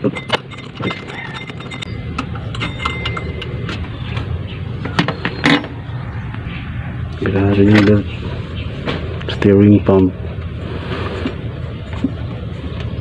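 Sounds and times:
steady low rumble: 5.7 - 13.0.

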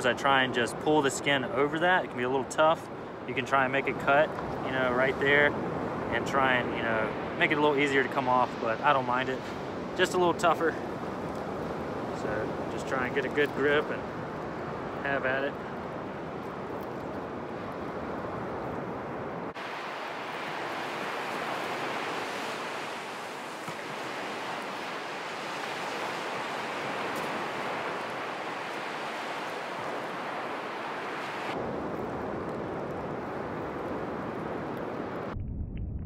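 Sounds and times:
ocean surf breaking: 0.0 - 35.4
wind on microphone: 13.9 - 36.0
low rumble: 35.3 - 36.0.

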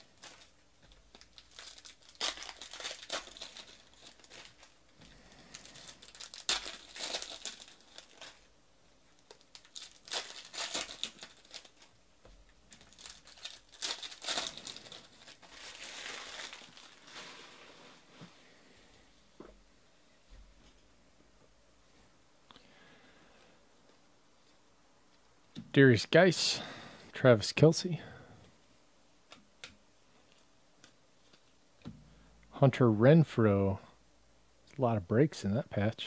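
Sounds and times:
foil wrappers tearing and crinkling: 0.0 - 8.5, 9.2 - 12.0, 12.7 - 17.7.

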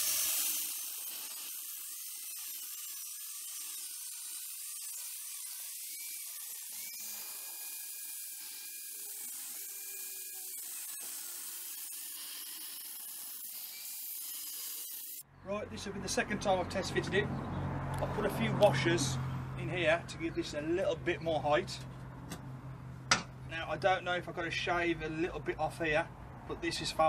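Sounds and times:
angle grinder cutting steel: 0.0 - 15.2.

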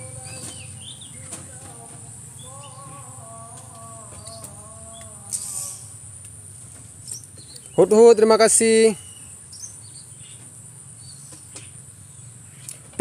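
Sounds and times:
faint drawn-out calls: 0.0 - 7.0
high insect drone: 0.0 - 12.8
small birds chirping: 0.0 - 13.0.

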